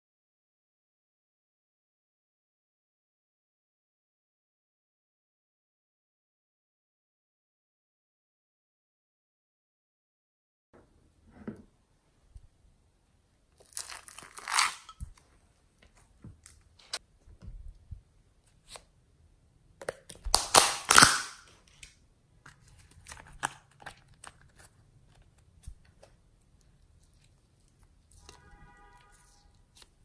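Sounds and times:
plastic lid crinkly tearing: 0:13.6 - 0:15.1, 0:20.1 - 0:21.9, 0:22.5 - 0:25.2.

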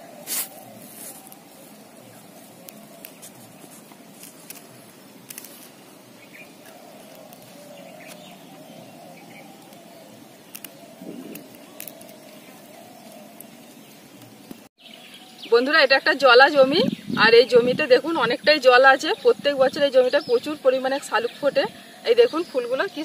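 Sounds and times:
steady background hiss: 0:00.0 - 0:23.0
small clicks: 0:10.5 - 0:12.2.

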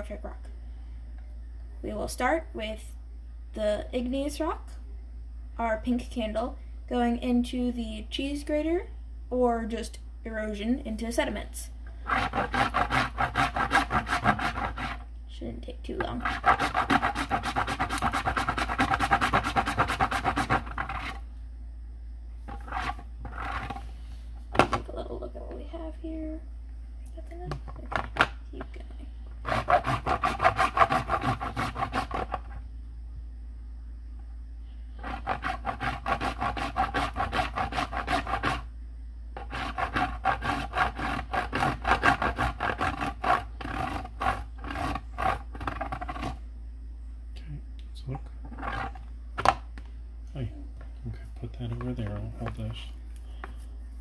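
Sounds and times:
candle rasping on metal grater: 0:12.0 - 0:15.0, 0:16.2 - 0:21.2, 0:22.5 - 0:23.8, 0:29.4 - 0:32.5, 0:35.0 - 0:38.7, 0:39.4 - 0:46.4.

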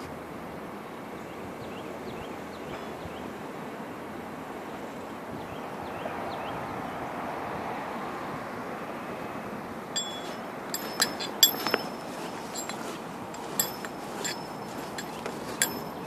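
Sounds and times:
steady outdoor hiss: 0:00.0 - 0:16.0
metallic clinks and clicks: 0:10.0 - 0:16.0.

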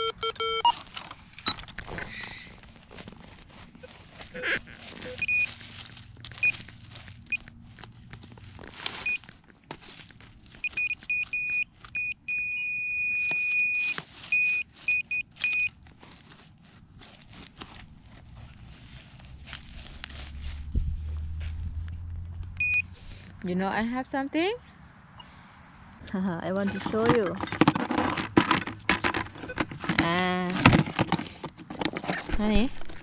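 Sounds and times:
metal detector probe beeping: 0:00.0 - 0:00.8, 0:03.8 - 0:05.6, 0:09.0 - 0:09.2, 0:10.6 - 0:15.8, 0:22.6 - 0:22.9, 0:26.6 - 0:27.8
soil and dry leaves rustling: 0:00.7 - 0:33.0.

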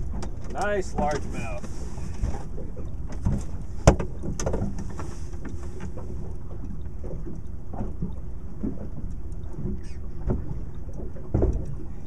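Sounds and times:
water around a boat: 0:00.0 - 0:12.0
wind: 0:00.0 - 0:12.0
knocks on a boat: 0:03.1 - 0:04.8, 0:11.2 - 0:11.8.

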